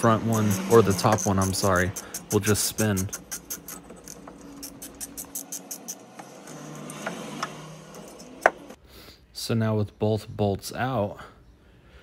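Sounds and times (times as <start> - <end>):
metallic clicking and scraping: 0.0 - 8.8.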